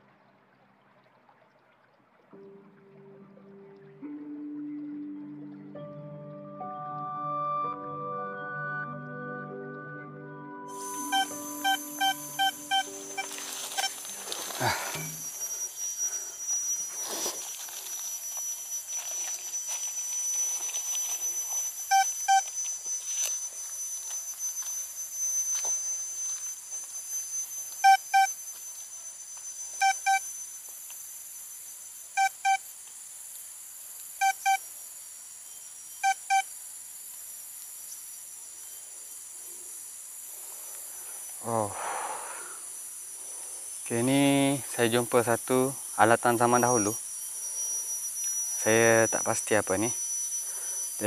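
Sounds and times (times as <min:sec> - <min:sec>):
metal detector beeps: 0:10.7 - 0:30.5, 0:32.1 - 0:32.7, 0:34.2 - 0:34.6, 0:35.8 - 0:36.5, 0:43.9 - 0:51.0
high insect drone: 0:10.7 - 0:51.0
hands scraping in soil: 0:16.8 - 0:21.6.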